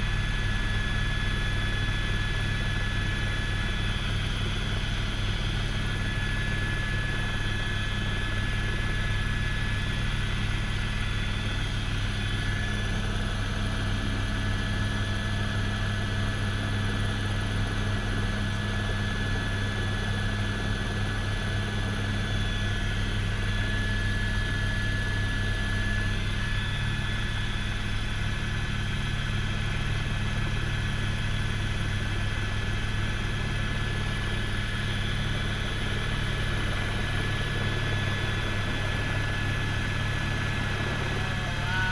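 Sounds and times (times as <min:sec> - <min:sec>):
helicopter rotor and engine drone: 0:00.0 - 0:41.9
high whine: 0:36.5 - 0:41.9.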